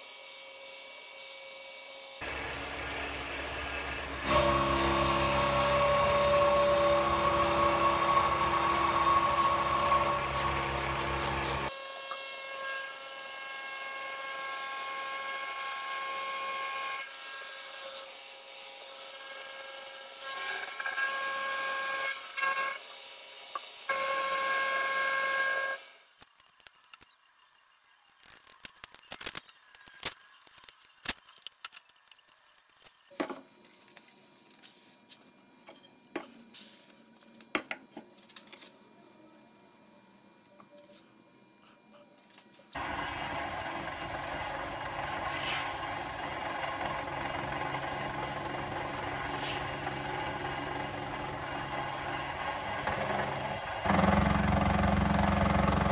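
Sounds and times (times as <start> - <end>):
mill-drill whining: 2.2 - 12.2, 23.8 - 26.0, 42.8 - 55.9.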